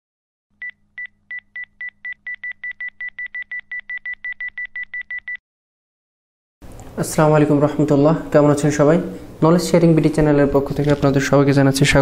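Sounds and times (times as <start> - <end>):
short electronic beeps: 0.6 - 5.4.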